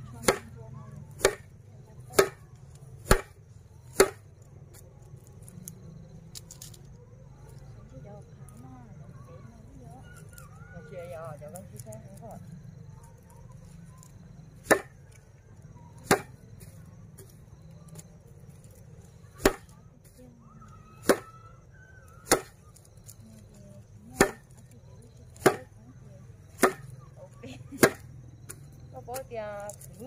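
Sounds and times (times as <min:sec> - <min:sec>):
grass bundle whacked on wooden board: 0:01.2 - 0:01.4, 0:02.2 - 0:02.4, 0:03.0 - 0:04.2, 0:14.6 - 0:14.9, 0:16.1 - 0:16.3, 0:19.4 - 0:19.7, 0:22.2 - 0:22.5, 0:24.2 - 0:24.5, 0:25.4 - 0:25.7, 0:26.6 - 0:26.9, 0:27.8 - 0:28.0.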